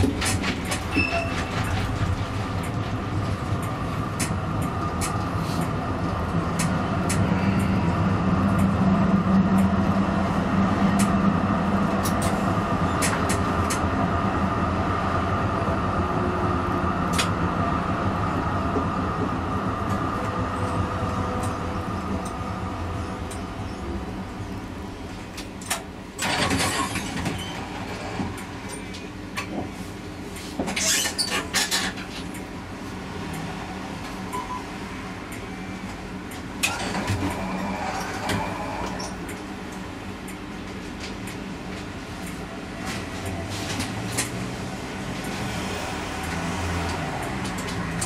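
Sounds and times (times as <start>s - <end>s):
wheels clicking on rails: 0.0s - 13.9s, 45.2s - 48.0s
tram motor and wheel hum: 0.0s - 48.0s.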